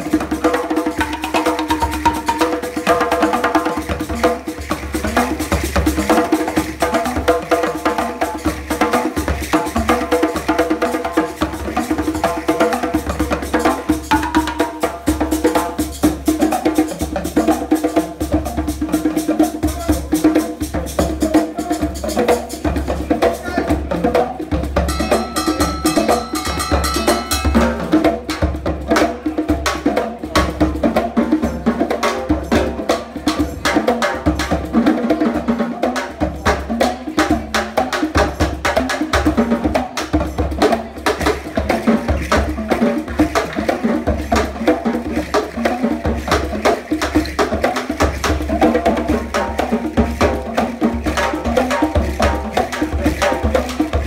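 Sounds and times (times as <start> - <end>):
balafon playing fast line: 0.0 - 31.8, 32.6 - 54.0
hand drums steady rhythm: 0.0 - 54.0
talking drum struck with stick: 18.5 - 54.0.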